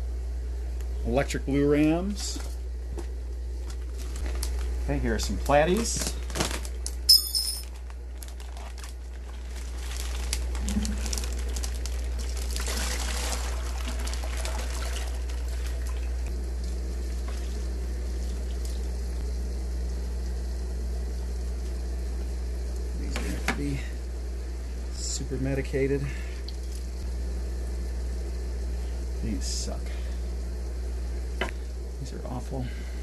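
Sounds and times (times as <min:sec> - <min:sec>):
low hum: 0:00.0 - 0:33.0
water pouring into plastic bucket: 0:10.1 - 0:16.0.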